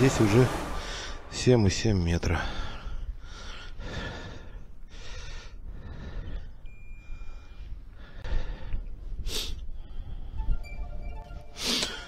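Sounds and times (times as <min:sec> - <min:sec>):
man breathing heavily: 0:02.4 - 0:10.6, 0:11.6 - 0:12.0
faint high steady tone: 0:06.6 - 0:07.8, 0:10.2 - 0:12.0.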